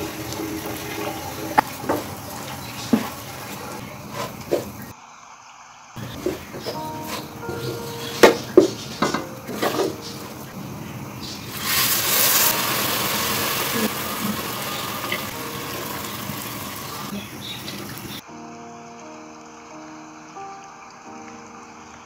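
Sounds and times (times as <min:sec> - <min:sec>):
water pouring into hot pot: 0:00.0 - 0:03.8, 0:11.5 - 0:18.2
wooden spoon scraping a pot: 0:00.5 - 0:04.9, 0:06.1 - 0:10.3.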